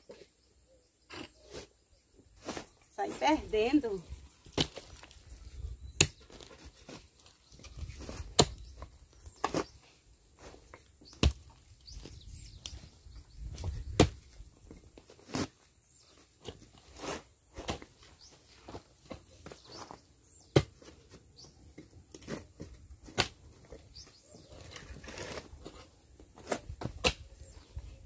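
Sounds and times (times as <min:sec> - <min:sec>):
digging tool crunching into soil: 0:02.4 - 0:14.4, 0:15.0 - 0:15.6, 0:16.2 - 0:21.2, 0:22.0 - 0:23.8, 0:24.4 - 0:27.6.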